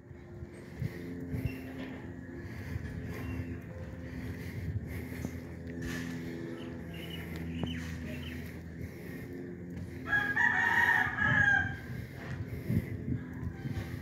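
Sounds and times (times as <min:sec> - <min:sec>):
low steady hum: 0:00.0 - 0:14.0
rooster crowing: 0:10.0 - 0:12.0.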